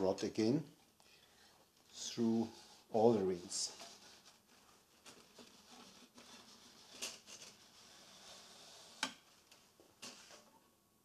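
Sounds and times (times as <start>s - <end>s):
metal rod scraping plastic: 3.4s - 10.6s.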